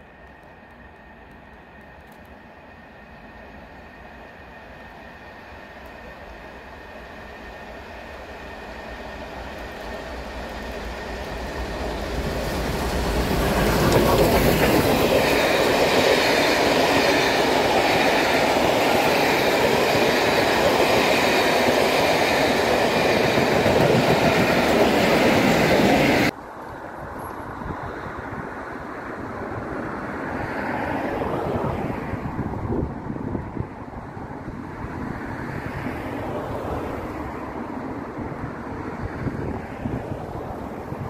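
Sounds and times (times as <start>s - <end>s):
train wheels clattering on rail: 6.8s - 26.3s
wind noise on microphone: 22.8s - 30.5s, 31.2s - 36.4s, 38.0s - 41.0s.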